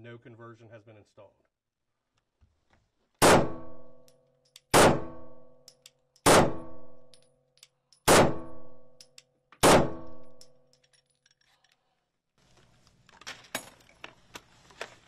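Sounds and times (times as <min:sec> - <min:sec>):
pistol shots with ringing tail: 0:03.2 - 0:07.3, 0:08.0 - 0:10.6.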